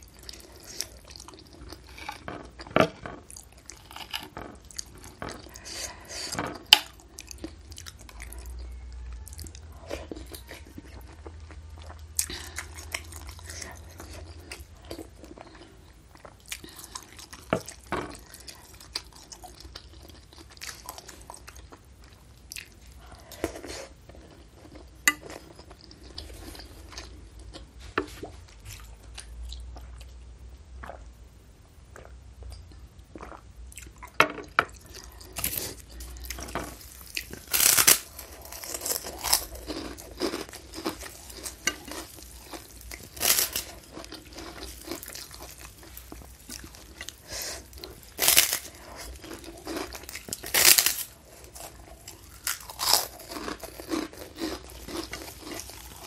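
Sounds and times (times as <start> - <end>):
crackers crunching: 0.0 - 8.8, 34.8 - 56.0
person chewing: 0.0 - 31.1, 31.8 - 56.0.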